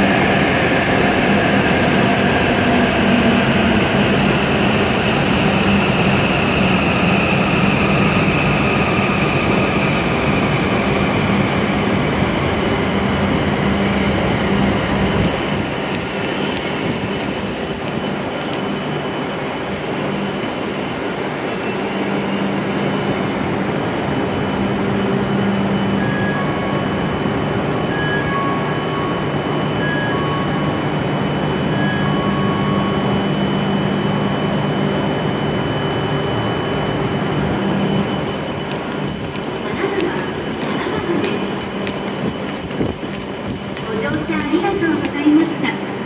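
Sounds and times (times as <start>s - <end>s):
train equipment humming: 0.0s - 46.0s
train slowing to a stop: 0.0s - 46.0s
high brake squeal: 13.8s - 17.0s, 19.2s - 23.9s.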